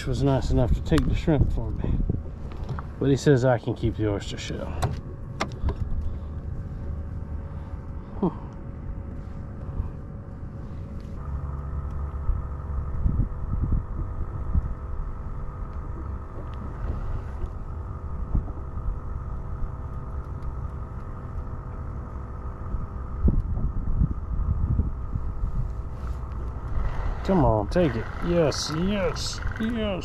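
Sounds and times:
outboard motor running: 0:00.0 - 0:30.0
wind on microphone: 0:00.5 - 0:02.9, 0:12.2 - 0:14.9, 0:15.9 - 0:19.0, 0:22.6 - 0:27.3.

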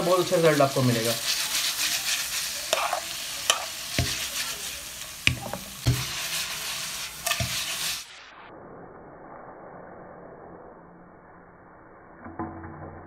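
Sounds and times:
meat sizzling in a frying pan: 0:00.0 - 0:08.1.

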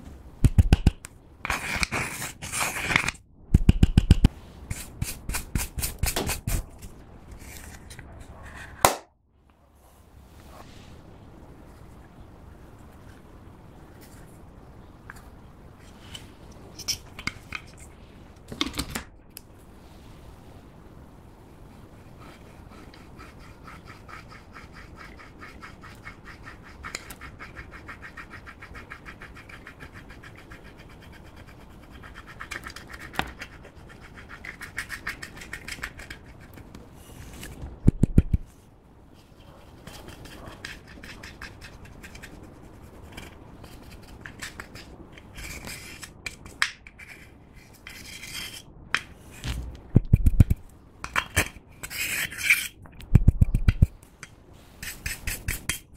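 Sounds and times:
plastic spatula scraping powder: 0:01.4 - 0:03.2.

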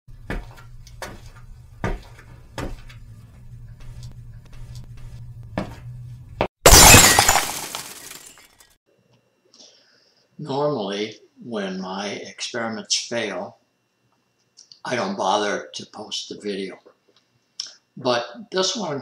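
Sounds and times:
glass shattering crash: 0:06.6 - 0:08.6.

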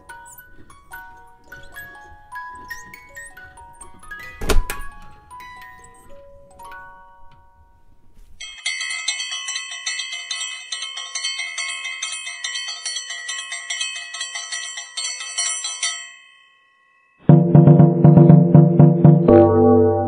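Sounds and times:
bell ringing in fast trill: 0:08.4 - 0:17.6.

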